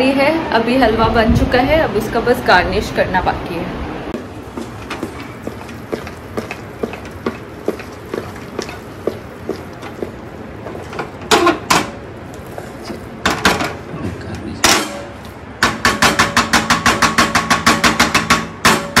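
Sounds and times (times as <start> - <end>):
kitchen utensils clattering: 4.6 - 12.0, 14.6 - 18.0
loud knocks: 14.6 - 19.0.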